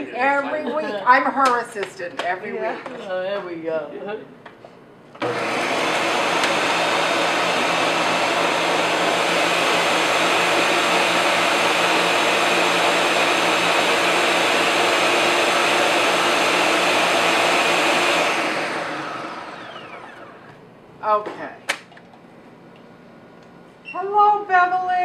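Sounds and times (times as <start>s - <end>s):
blender motor winding down: 5.2s - 20.6s
blender running: 5.2s - 20.6s.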